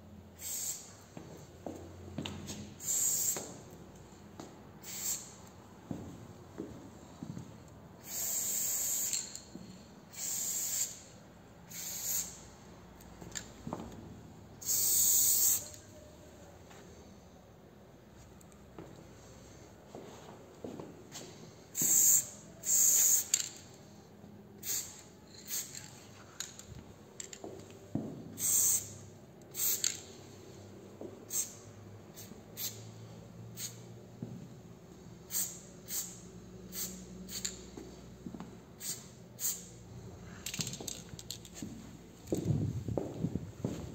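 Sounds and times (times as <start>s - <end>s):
spray paint can hissing: 0.4s - 1.0s, 2.8s - 3.6s, 4.8s - 5.4s, 8.0s - 9.5s, 10.1s - 11.1s, 11.7s - 12.5s, 14.6s - 15.8s, 21.8s - 23.6s, 24.6s - 26.0s, 28.4s - 30.1s, 31.3s - 31.6s, 32.2s - 32.9s, 33.6s - 33.8s, 35.3s - 37.7s, 38.8s - 39.8s.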